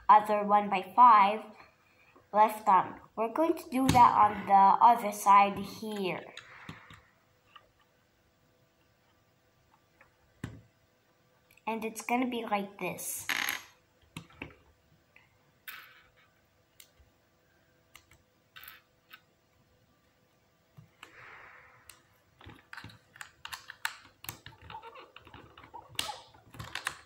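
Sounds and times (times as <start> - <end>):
plastic pieces clicking together: 21.9 - 27.0.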